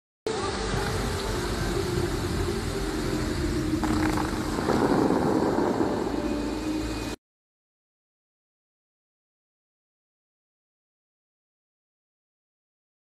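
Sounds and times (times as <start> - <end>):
outdoor rumble and hiss: 0.3 - 7.2.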